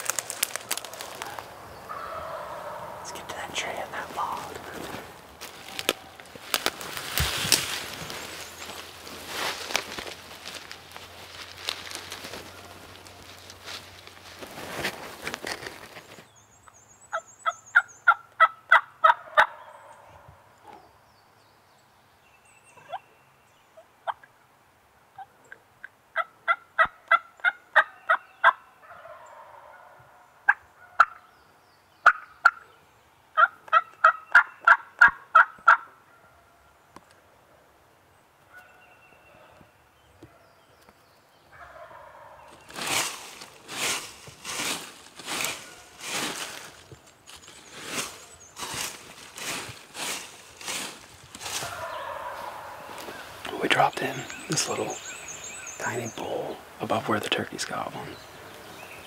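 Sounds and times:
rustling in dry leaves: 0.0 - 16.4, 41.6 - 59.0
wild turkey yelping: 0.5 - 3.2, 17.1 - 20.3, 26.2 - 31.3, 32.0 - 32.6, 33.4 - 36.6, 41.5 - 42.6, 51.4 - 55.8.

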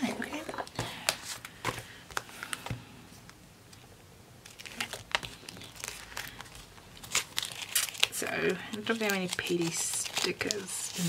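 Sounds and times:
sticker sheets rustling: 4.4 - 11.0.

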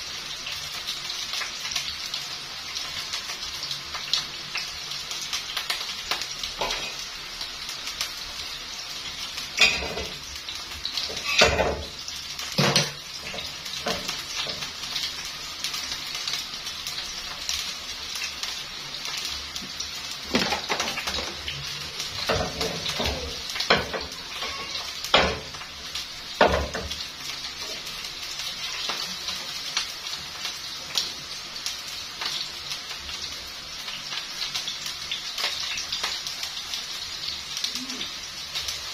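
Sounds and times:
chips sizzling in hot oil: 0.0 - 38.9.

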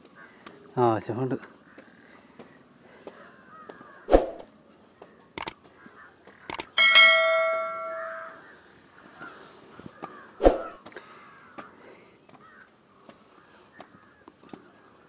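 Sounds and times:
metallic clang ringing: 6.7 - 8.4
footsteps on steel stairs: 6.8 - 8.3.

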